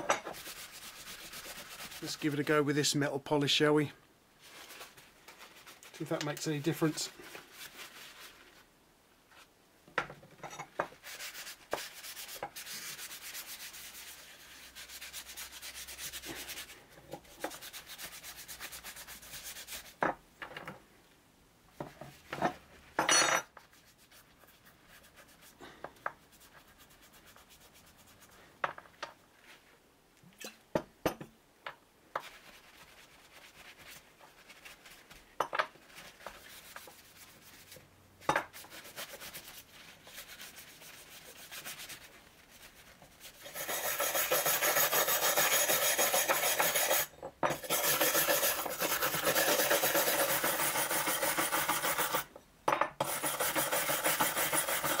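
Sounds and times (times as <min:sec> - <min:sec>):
rag scrubbing metal: 0:43.4 - 0:52.3, 0:53.0 - 0:55.0.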